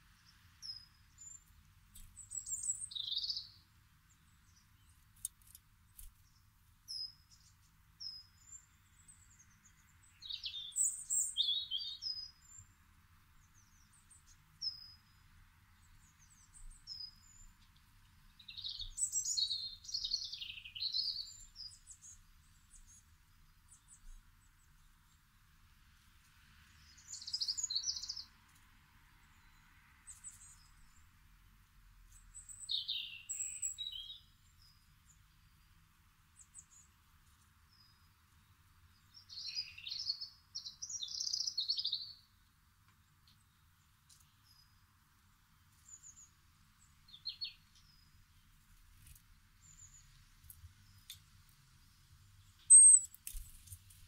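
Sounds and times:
finches twittering: 52.6 - 53.7.

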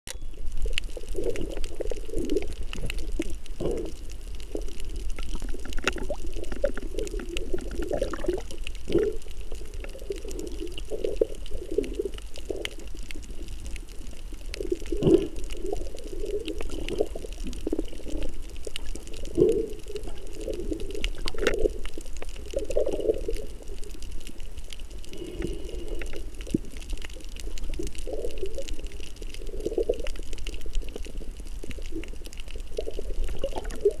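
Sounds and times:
faint high whine: 0.1 - 0.6
muffled underwater gurgling: 0.3 - 34.0.

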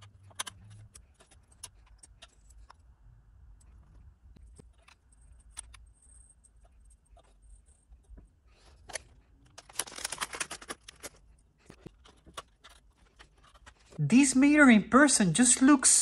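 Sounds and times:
plastic packet crinkling: 9.5 - 11.2.

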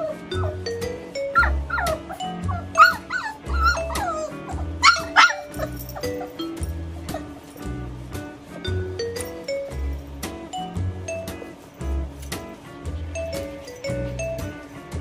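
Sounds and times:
puppies yipping and whining: 0.0 - 7.7
background music: 0.0 - 15.0.

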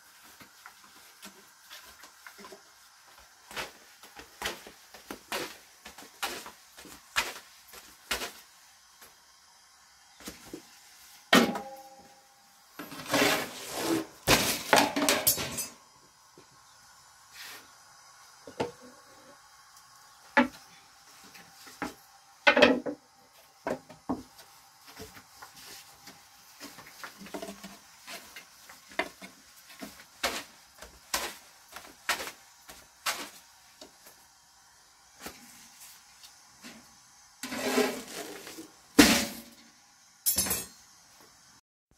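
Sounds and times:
metal clinks of griddle and trays: 14.7 - 15.8, 40.3 - 40.8.

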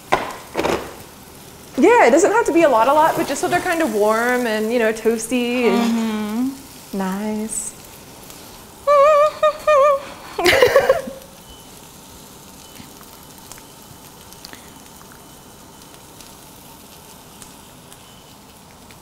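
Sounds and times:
tortillas sizzling in a pan: 0.0 - 19.0
person exclaiming or laughing: 5.6 - 6.6, 8.9 - 11.3.

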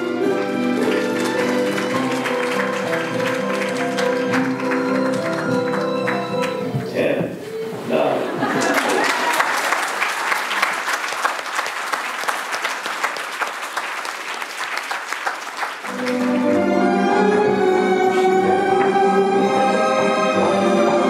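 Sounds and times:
audience applauding: 0.0 - 6.7, 8.4 - 16.9
orchestral music with bowed strings: 0.0 - 8.2, 15.9 - 21.0.

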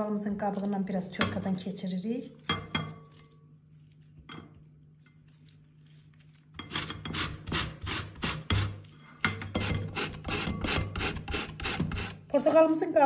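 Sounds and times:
orange rasping on metal grater: 6.6 - 8.8, 9.6 - 12.2.

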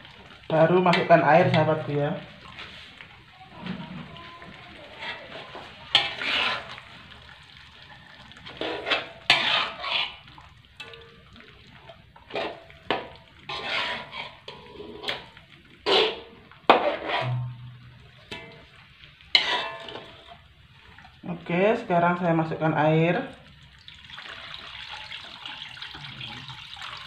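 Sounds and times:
metal spatula scraping a wok: 4.9 - 6.9, 8.5 - 10.2, 12.2 - 18.6, 19.3 - 20.4.

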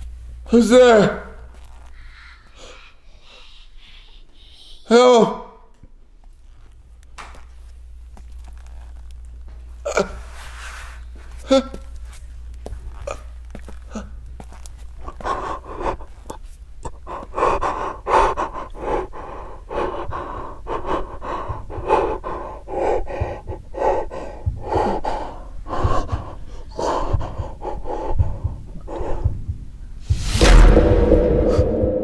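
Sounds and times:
low steady hum: 0.0 - 4.8, 5.6 - 32.0
man gasping breaths: 2.0 - 5.0, 15.0 - 29.6.

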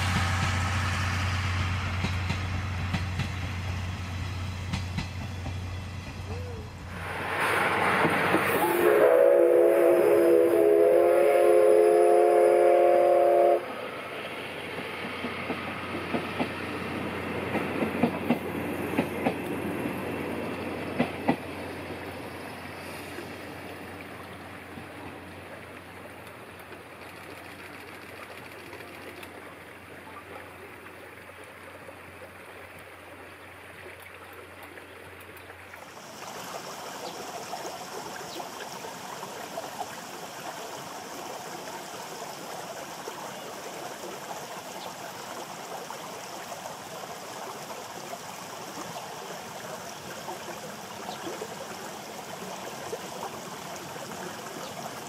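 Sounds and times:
steady hiss: 0.0 - 33.9, 35.0 - 55.0
train wheel clicks and clanks: 1.9 - 3.7, 4.6 - 6.2, 14.7 - 16.6, 17.4 - 20.0, 20.7 - 21.6, 26.6 - 29.4
steam whistle blowing: 8.5 - 13.8.

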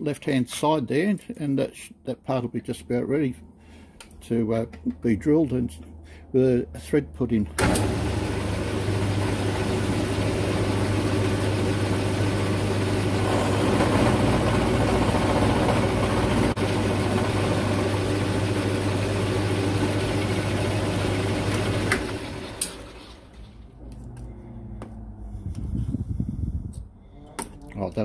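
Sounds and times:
milling machine motor hum: 7.6 - 23.4.

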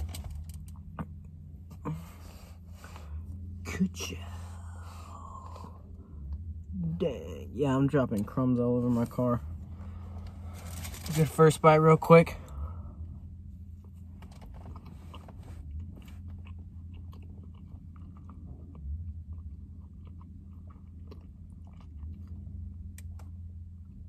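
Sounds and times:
steady low hum: 0.0 - 24.0
person chewing cake: 13.7 - 24.0
mouth clicks and small crunches: 13.9 - 23.4.

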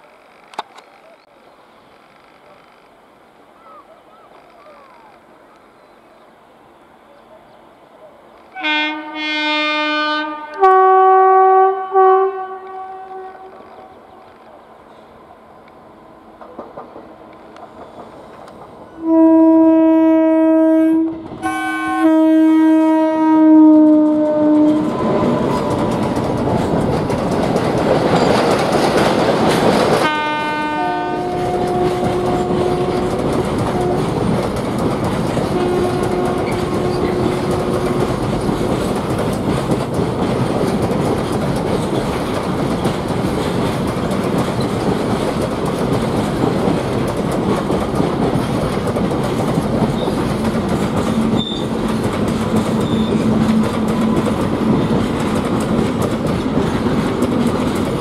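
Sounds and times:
train rumbling past: 0.0 - 58.0
locomotive air horn: 8.5 - 13.6, 19.0 - 25.8, 30.0 - 34.1, 35.5 - 38.1
clickety-clack of wagons: 16.4 - 18.9, 24.3 - 30.2, 31.3 - 58.0.

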